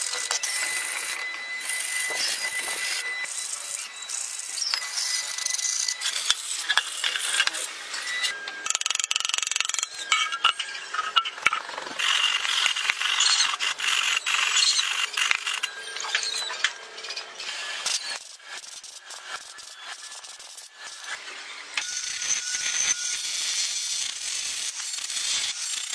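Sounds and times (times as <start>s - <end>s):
sandpaper rubbing metal: 0.0s - 10.0s, 12.0s - 15.7s, 17.5s - 21.2s
scraping and rasping metal: 0.0s - 23.0s
clicks and rattles of tools: 4.6s - 18.2s.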